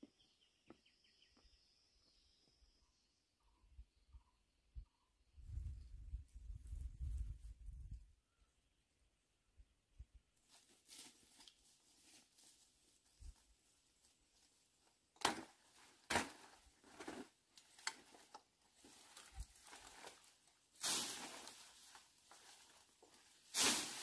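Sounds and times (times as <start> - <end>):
leafy plants rustling and snapping: 10.5 - 24.0.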